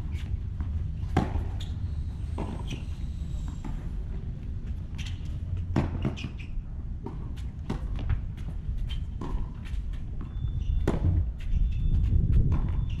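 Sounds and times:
tennis ball bouncing: 0:00.1 - 0:01.7, 0:02.4 - 0:02.9, 0:05.0 - 0:08.5, 0:09.2 - 0:11.2.

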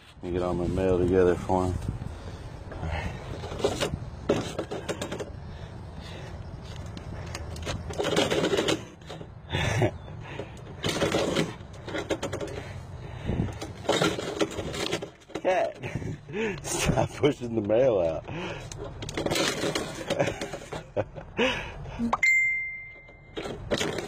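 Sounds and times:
envelope through metal mail slot: 0:07.3 - 0:09.2, 0:10.8 - 0:12.7, 0:18.6 - 0:20.9, 0:23.0 - 0:24.0
paper mail rustling: 0:19.1 - 0:20.6.

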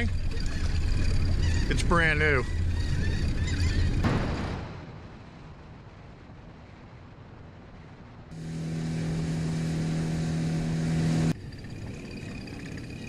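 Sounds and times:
outboard motor running: 0:00.0 - 0:04.0, 0:08.3 - 0:13.0.

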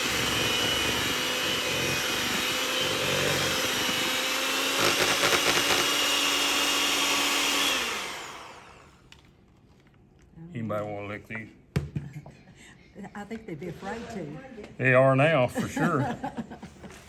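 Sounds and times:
electric hand mixer running: 0:00.0 - 0:09.1.

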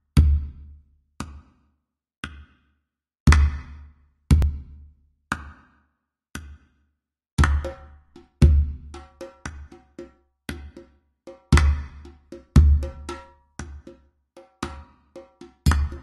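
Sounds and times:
sparse drum beat: 0:11.3 - 0:16.0.

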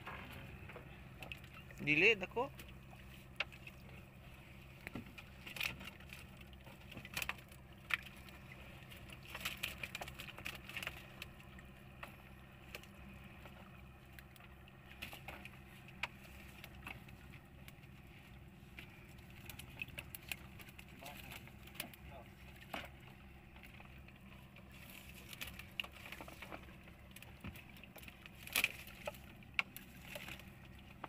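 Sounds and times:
small water splashes: 0:00.0 - 0:31.0
steady low hum: 0:00.0 - 0:31.0
clicks and knocks of fish trap: 0:27.2 - 0:31.0.

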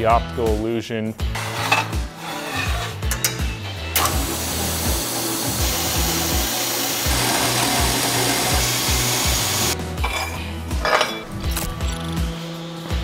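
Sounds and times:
background music with beat: 0:00.0 - 0:13.0
bandsaw cutting steel: 0:01.3 - 0:03.4, 0:04.0 - 0:09.8.

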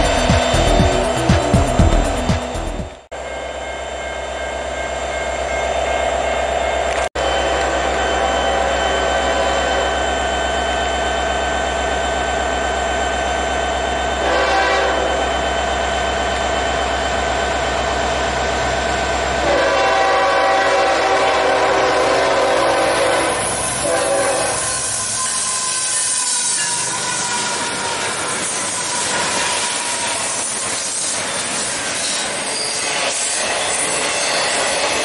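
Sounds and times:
crossing signal bells ringing: 0:00.0 - 0:13.5
train horn blasts: 0:14.2 - 0:15.3, 0:19.4 - 0:28.0.

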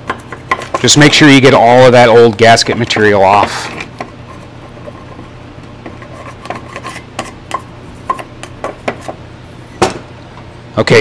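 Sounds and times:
steady low hum: 0:00.0 - 0:11.0
metal scraper scraping: 0:05.8 - 0:09.2.

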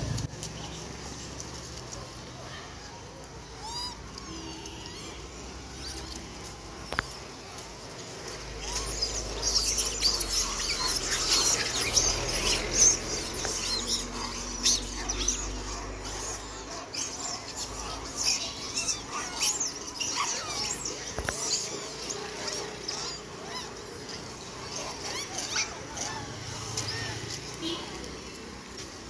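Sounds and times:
monkeys squeaking and chirping: 0:00.0 - 0:29.0.

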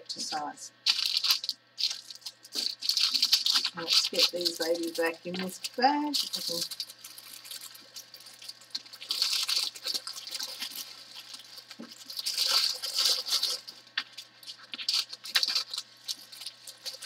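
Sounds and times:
plastic crinkling and rustling: 0:00.2 - 0:17.0.

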